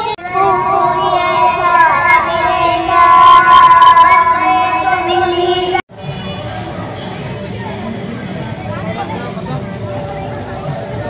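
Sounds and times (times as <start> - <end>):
child singing: 0.0 - 5.8.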